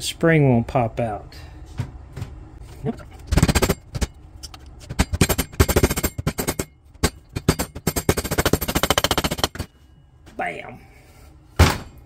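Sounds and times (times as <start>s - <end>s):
hammer rapidly tapping metal: 3.3s - 4.1s, 4.9s - 9.7s.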